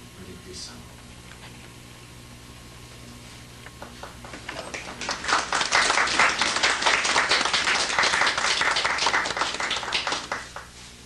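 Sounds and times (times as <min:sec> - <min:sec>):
crowd clapping: 0:03.8 - 0:10.8.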